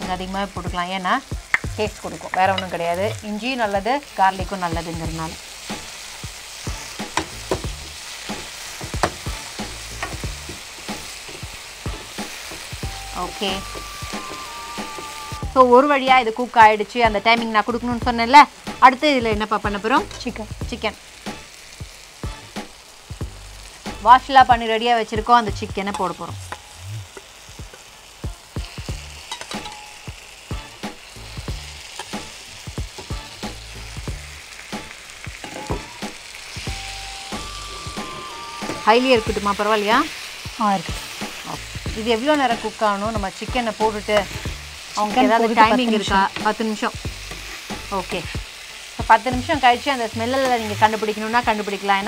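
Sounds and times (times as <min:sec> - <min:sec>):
vegetables sizzling in oil: 0:00.0 - 0:52.0
spatula scraping a pan: 0:44.1 - 0:48.0.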